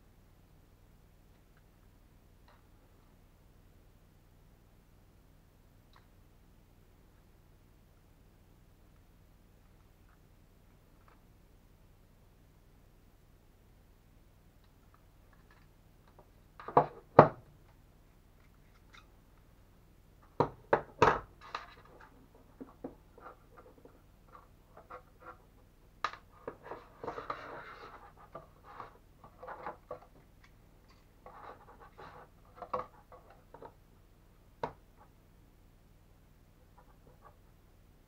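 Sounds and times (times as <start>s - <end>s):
rubbing and rustling: 21.3s - 33.8s.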